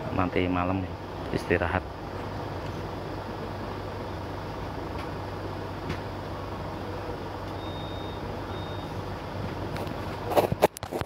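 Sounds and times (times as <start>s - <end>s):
vehicle engine idling: 0.0s - 10.4s
high electronic beeps: 7.6s - 9.0s.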